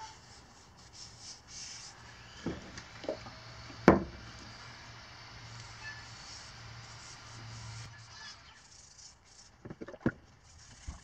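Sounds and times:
objects knocking on wooden workbench: 0:02.4 - 0:03.2, 0:03.9 - 0:04.2.

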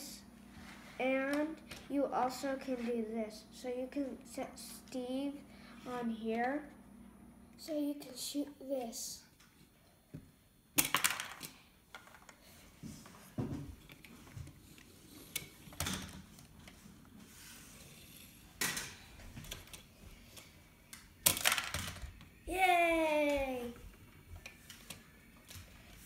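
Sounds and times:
child's voice falling in pitch: 0:22.5 - 0:23.8.

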